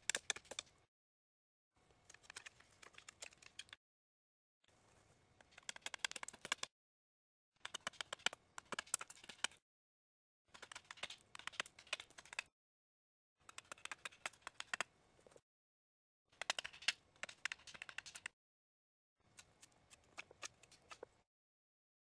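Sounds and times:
knife shaving wood: 0:19.3 - 0:21.2.

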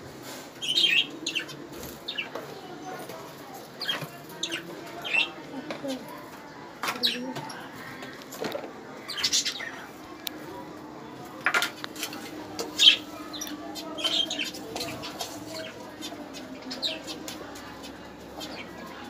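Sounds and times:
cage birds chirping: 0:00.3 - 0:19.0
wings fluttering and rustling: 0:11.2 - 0:19.0.

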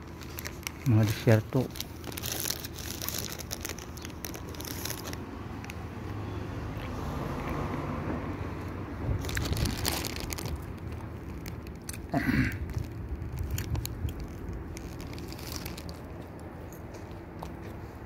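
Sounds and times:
crunchy snack being eaten: 0:00.1 - 0:05.2, 0:09.2 - 0:16.5.

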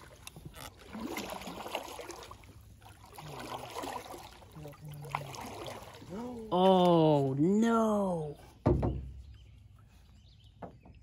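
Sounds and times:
water splashing around boat: 0:00.0 - 0:11.0.

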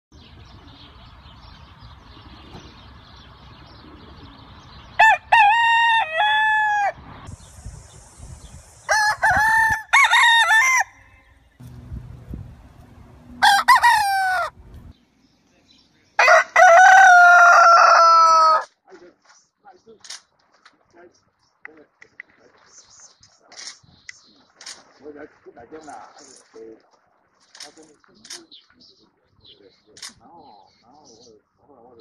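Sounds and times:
rooster crowing: 0:05.0 - 0:07.0, 0:08.9 - 0:11.3, 0:13.3 - 0:14.6, 0:16.2 - 0:18.7.

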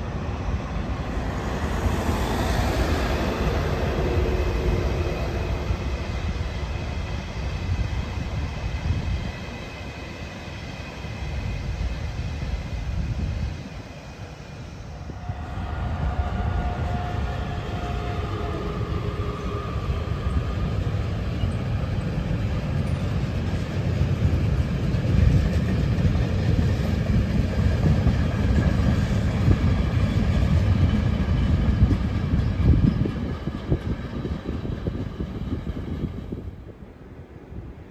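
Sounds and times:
train wheels rumbling on track: 0:00.0 - 0:37.9
steady tonal whine: 0:14.8 - 0:22.4.

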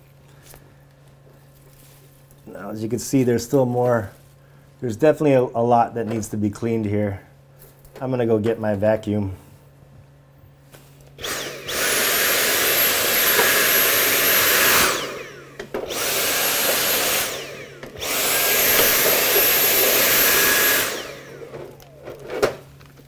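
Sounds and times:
vacuum cleaner motor whine: 0:10.8 - 0:23.0.

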